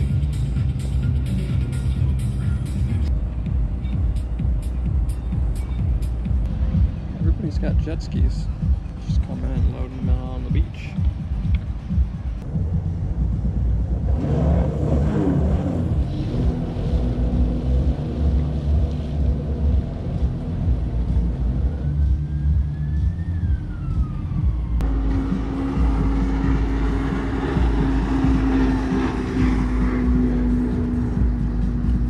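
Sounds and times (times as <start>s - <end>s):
heavy low rumble: 0.0s - 32.0s
steady engine tone: 0.0s - 32.0s
jet ski engine drone: 12.5s - 32.0s.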